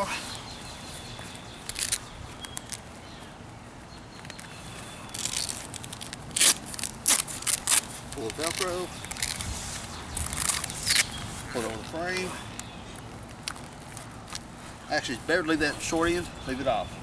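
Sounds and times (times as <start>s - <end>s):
fabric and vinyl rustling: 5.1s - 16.0s.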